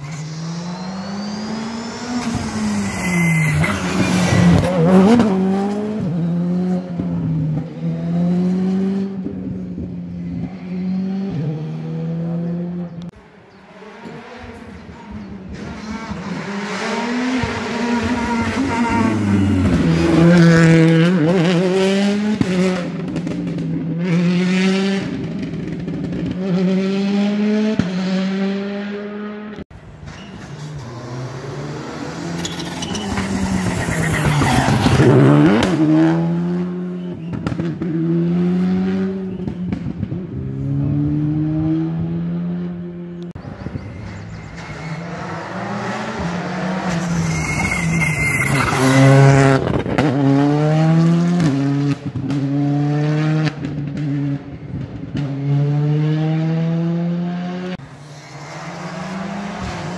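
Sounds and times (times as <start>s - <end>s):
rally car engines revving: 0.0s - 59.9s
car passing close: 24.2s - 59.9s.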